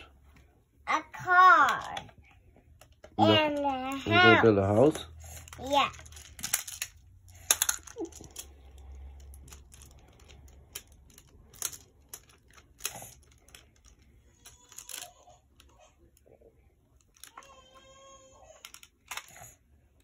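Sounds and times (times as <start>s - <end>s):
plastic tiles clicking: 5.4s - 15.2s.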